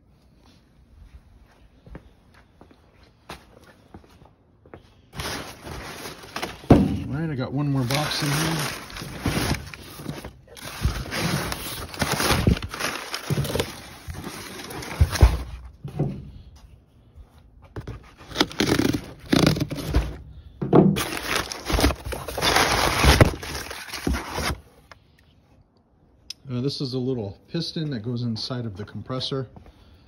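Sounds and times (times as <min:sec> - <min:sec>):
packing paper rustling: 0:05.1 - 0:15.7, 0:17.8 - 0:20.2, 0:21.0 - 0:24.8
cardboard boxes scraping and knocking: 0:07.9 - 0:15.8, 0:17.7 - 0:20.2, 0:20.9 - 0:24.6.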